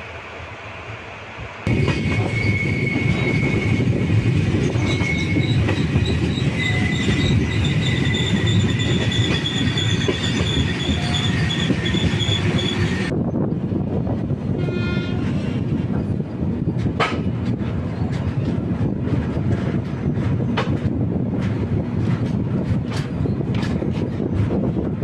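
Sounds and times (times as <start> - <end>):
train rumbling on rails: 0.0 - 25.0
steel wheels squealing: 1.7 - 13.1.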